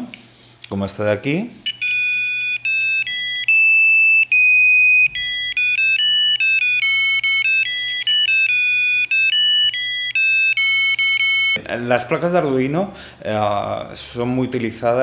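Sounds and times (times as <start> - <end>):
buzzer beeping a melody: 1.6 - 11.6.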